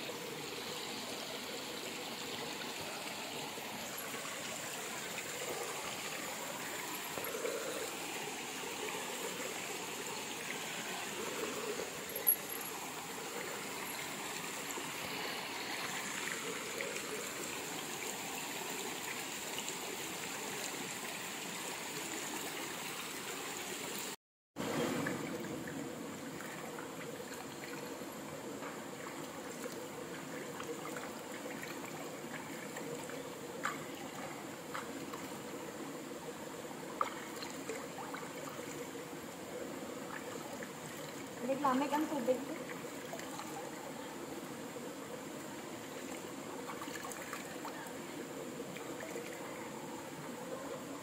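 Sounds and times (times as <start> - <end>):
stream babbling over rocks: 0.0 - 51.0.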